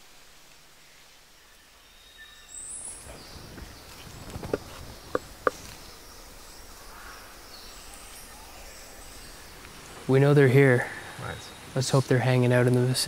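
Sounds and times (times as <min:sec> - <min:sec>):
sharp wooden knocks: 0:04.3 - 0:05.6.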